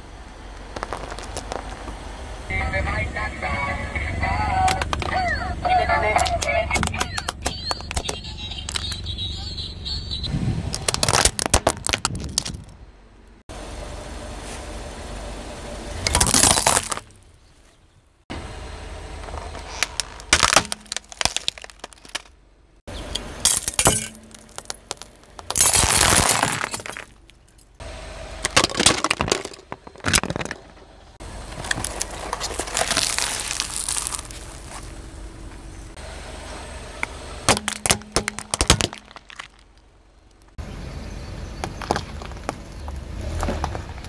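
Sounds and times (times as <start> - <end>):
tyre crushing hard plastic: 10.7 - 12.7, 16.1 - 17.1, 19.6 - 22.3, 23.5 - 27.3, 28.4 - 30.8, 31.5 - 34.8, 37.5 - 39.8.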